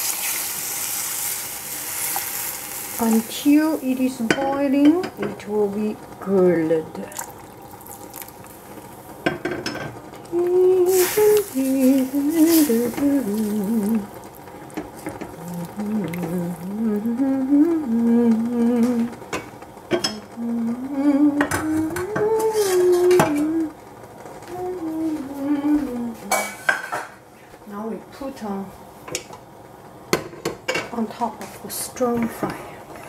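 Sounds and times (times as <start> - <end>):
person humming a tune: 10.3 - 14.2, 15.3 - 19.2, 20.1 - 23.8, 24.5 - 26.3.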